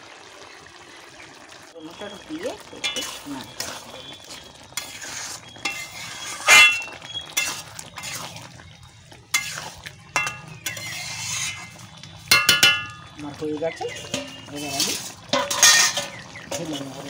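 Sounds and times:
metal spatula scraping a pan: 0:02.8 - 0:08.6, 0:09.2 - 0:13.0, 0:13.8 - 0:17.0
spatula knocking on pan: 0:12.3 - 0:13.0.

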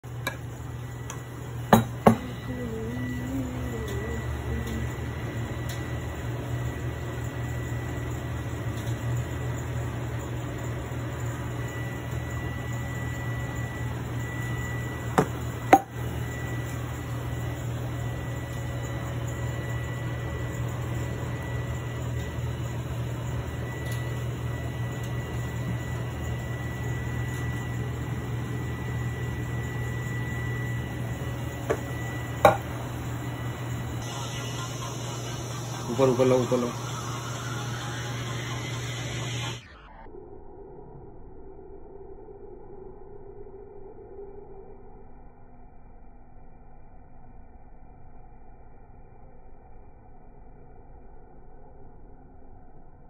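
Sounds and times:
steady machine hum: 0:00.0 - 0:53.0
thin high whine: 0:00.0 - 0:53.0.

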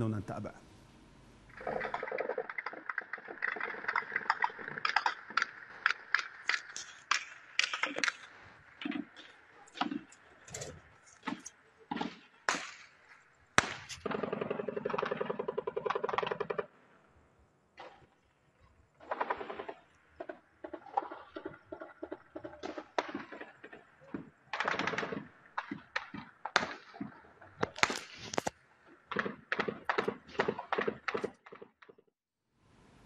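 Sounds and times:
single gunshots: 0:13.6 - 0:14.4, 0:27.7 - 0:28.3.

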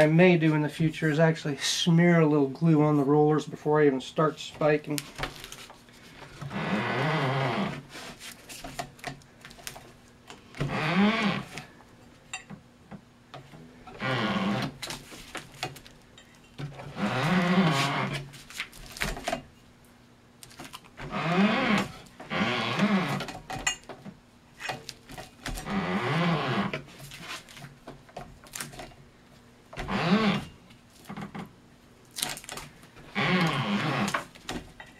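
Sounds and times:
twine squeaking: 0:16.9 - 0:18.3, 0:33.0 - 0:34.9.

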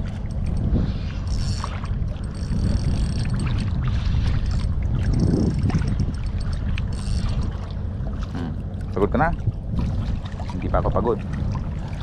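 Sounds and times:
water lapping on rocks: 0:00.0 - 0:12.0
wind rumbling on microphone: 0:00.0 - 0:12.0
fishing reel whirring: 0:00.3 - 0:07.6.

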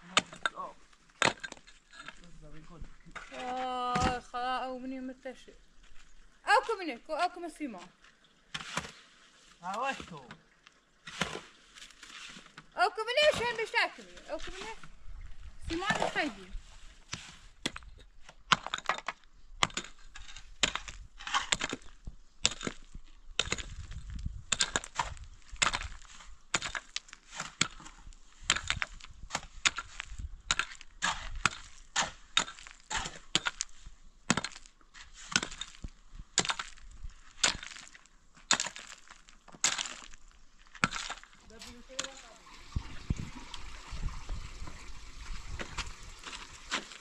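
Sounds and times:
hand pick striking stone: 0:00.0 - 0:02.3, 0:03.2 - 0:04.4, 0:11.1 - 0:14.8, 0:15.7 - 0:16.4, 0:17.1 - 0:42.4.

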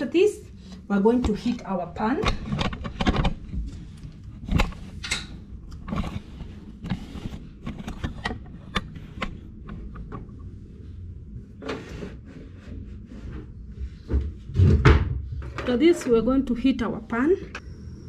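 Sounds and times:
steady low rumble: 0:03.3 - 0:15.5.

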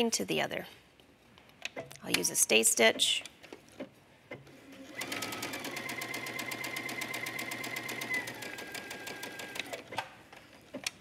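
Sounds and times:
sewing machine stitching: 0:04.7 - 0:10.0.

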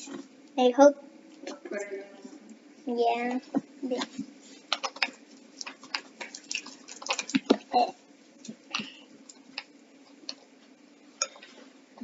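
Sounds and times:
wet slime squishes: 0:03.9 - 0:10.6.

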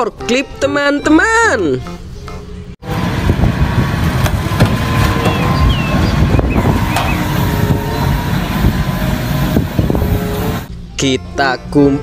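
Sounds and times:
forklift engine rumbling: 0:02.5 - 0:10.7
sharp knocks: 0:04.2 - 0:05.6.

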